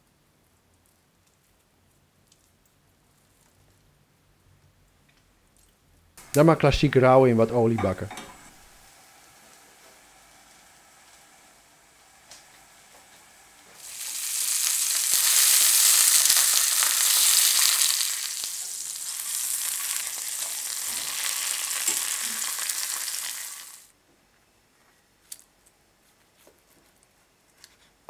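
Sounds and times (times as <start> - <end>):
sausages sizzling in a frying pan: 7.2 - 23.9.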